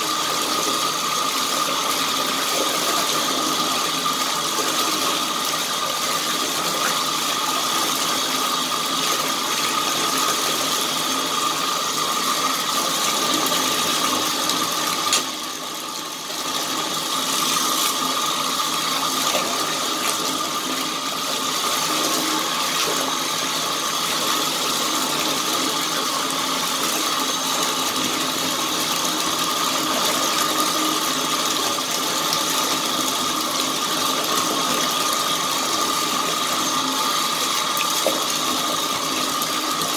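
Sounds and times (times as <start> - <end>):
faucet running: 0.0 - 39.9
sponge being squeezed: 17.2 - 18.2.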